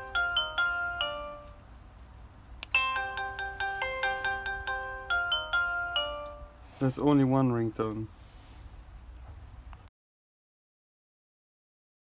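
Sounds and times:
doorbell chime tune: 0:00.0 - 0:01.7, 0:02.7 - 0:06.7.

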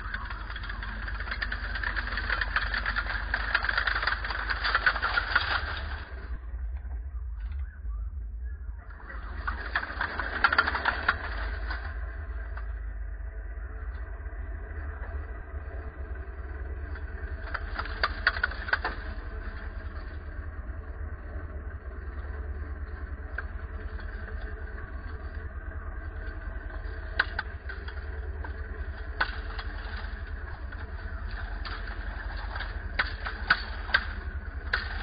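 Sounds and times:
sharp clicks: 0:00.0 - 0:06.4
vehicle engine running: 0:00.0 - 0:35.0.

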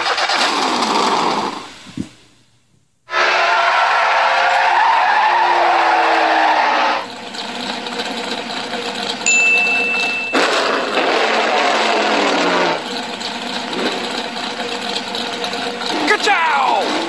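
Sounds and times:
tyres skidding on dirt: 0:00.0 - 0:01.8, 0:03.1 - 0:17.0
steady high tone: 0:09.3 - 0:11.0
cartoon car engine falling pitch: 0:09.3 - 0:13.0.

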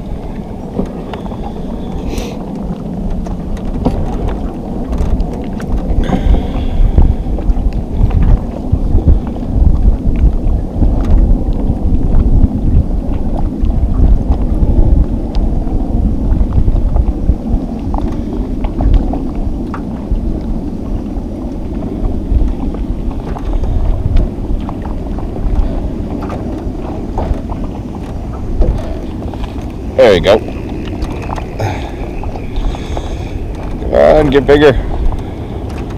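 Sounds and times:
wind buffeting microphone: 0:00.0 - 0:35.9
faint ticks from rocking boat: 0:00.7 - 0:06.3, 0:16.8 - 0:35.9.

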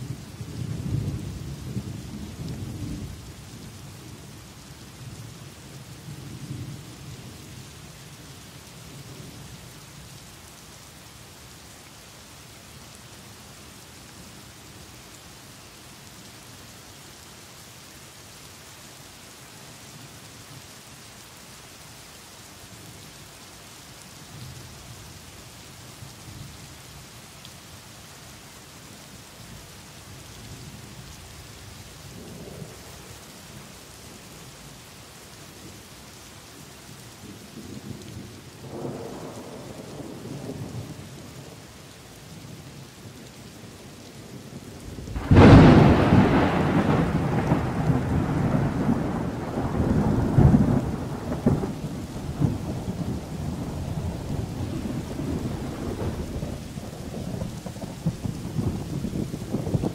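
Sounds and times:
steady rain: 0:00.0 - 0:59.9
distant thunder rumbling: 0:44.9 - 0:59.9
loud thunderclap: 0:45.2 - 0:57.5.

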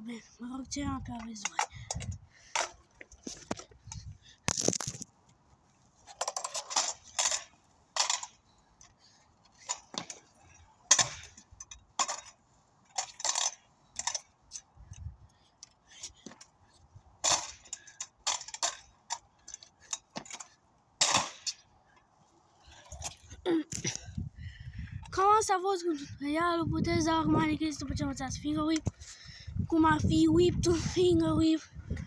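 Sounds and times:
scooter clattering on pavement: 0:06.0 - 0:08.4, 0:17.2 - 0:21.7.

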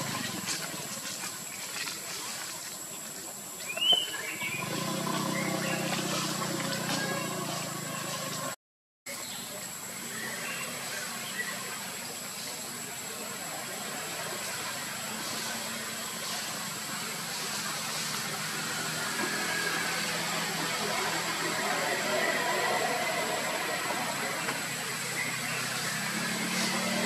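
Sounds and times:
steady background hiss: 0:09.1 - 0:27.0.

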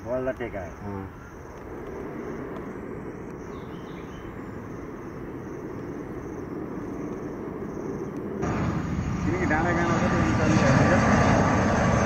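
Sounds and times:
distant airliner engine rumble: 0:00.0 - 0:12.0
insects chirping: 0:00.0 - 0:12.0.

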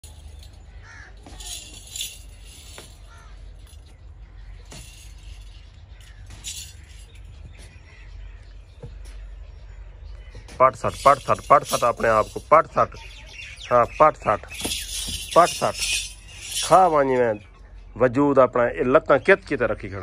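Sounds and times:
metallic jangling: 0:00.0 - 0:07.4, 0:10.8 - 0:17.4.

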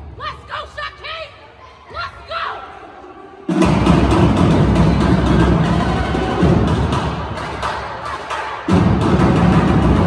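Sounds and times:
percussion-heavy music with deep bass: 0:03.5 - 0:10.0.

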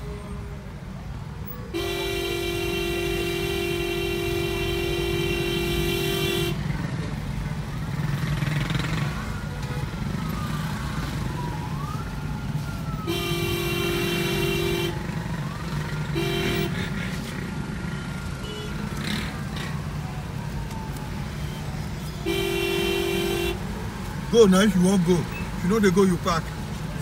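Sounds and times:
vehicle horn: 0:01.7 - 0:06.6, 0:13.0 - 0:15.0, 0:16.1 - 0:16.8, 0:22.2 - 0:23.6.

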